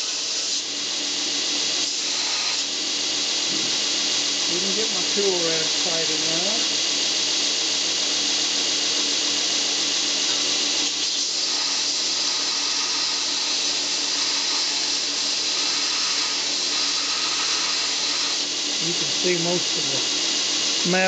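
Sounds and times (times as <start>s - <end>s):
belt grinder motor hum: 0.0s - 21.0s
metal grinding rasp: 10.9s - 18.5s.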